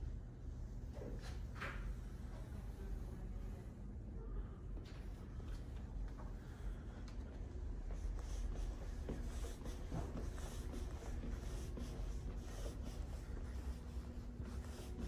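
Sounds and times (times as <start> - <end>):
steady low hum: 0.0 - 15.0
soft footsteps on hard floor: 4.8 - 15.0.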